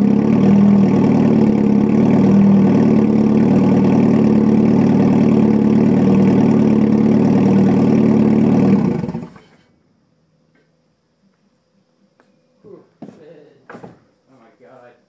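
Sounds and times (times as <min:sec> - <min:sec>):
car engine idling unevenly: 0:00.0 - 0:09.6.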